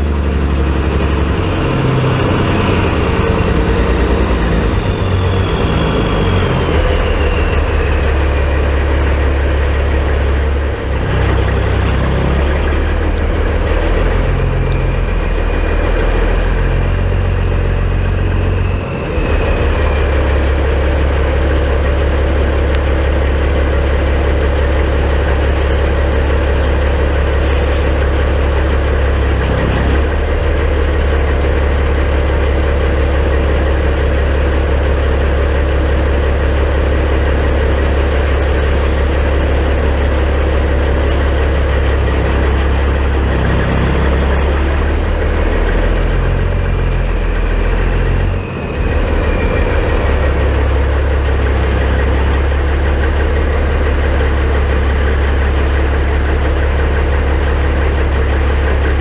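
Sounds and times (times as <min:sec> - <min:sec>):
diesel truck engine idling: 0:00.0 - 0:59.0.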